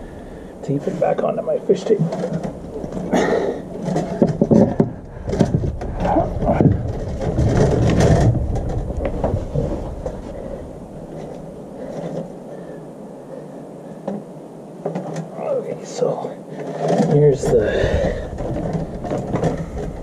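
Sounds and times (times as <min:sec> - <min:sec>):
knocks and shuffling on deck boards: 0:01.9 - 0:12.4, 0:16.6 - 0:20.0
low rumble: 0:02.3 - 0:12.5.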